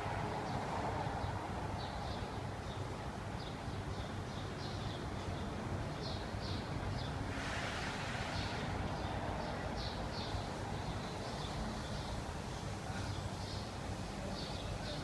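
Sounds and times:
brief rush of noise: 0:07.3 - 0:08.7.

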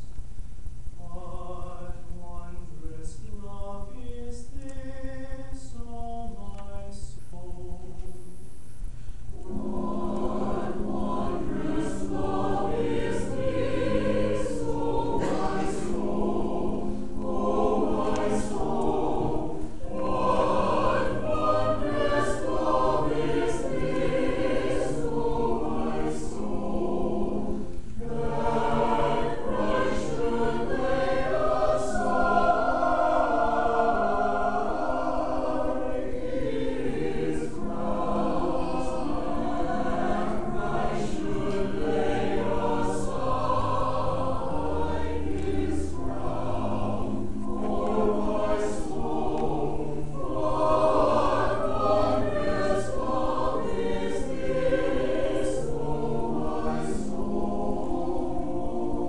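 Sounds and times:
singers breathing: 0:08.8 - 0:09.4
church choir singing: 0:09.3 - 0:59.0.

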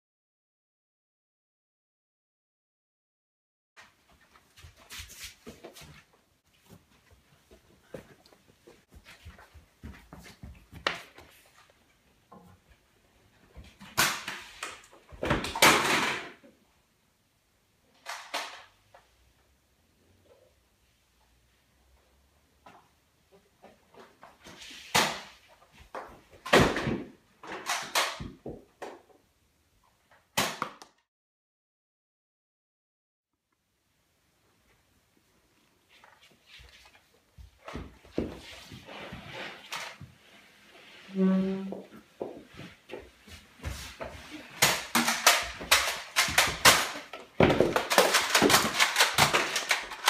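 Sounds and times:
running footsteps on wooden floor: 0:04.3 - 0:11.5
bumps and thuds on wooden floor: 0:47.4 - 0:49.4.

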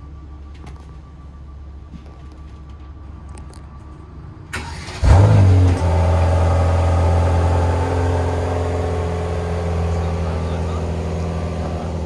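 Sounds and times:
engine starter cranking: 0:04.5 - 0:05.6
car engine revving and idling: 0:04.6 - 0:12.0.

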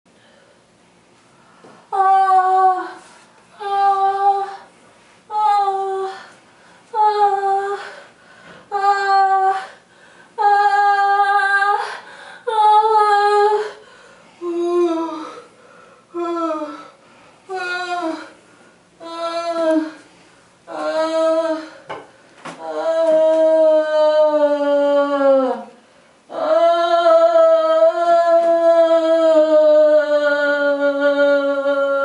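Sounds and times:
woman moaning tones: 0:01.9 - 0:04.7, 0:05.3 - 0:08.1, 0:08.7 - 0:09.8, 0:10.4 - 0:13.8, 0:14.4 - 0:15.5, 0:16.1 - 0:18.4, 0:19.0 - 0:20.1, 0:20.7 - 0:21.9, 0:22.6 - 0:32.0.

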